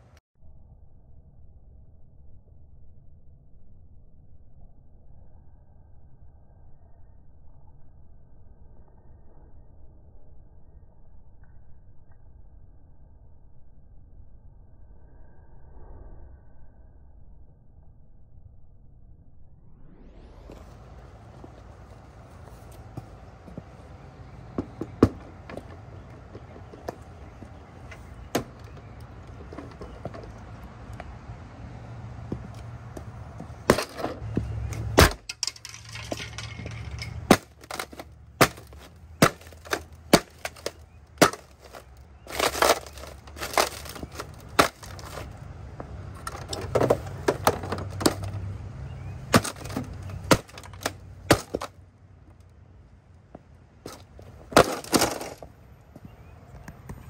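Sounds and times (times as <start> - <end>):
boots stomping: 20.4 - 31.1, 32.2 - 48.4, 49.3 - 51.7, 53.9 - 56.2
plastic case cracking: 35.0 - 45.3, 46.2 - 48.4, 49.3 - 51.7.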